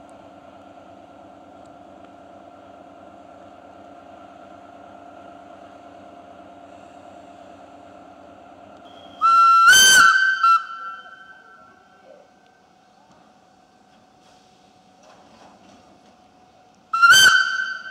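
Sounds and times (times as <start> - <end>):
locomotive electrical hum: 0.0 - 17.9
locomotive whistle blast: 8.9 - 11.9, 16.9 - 17.9.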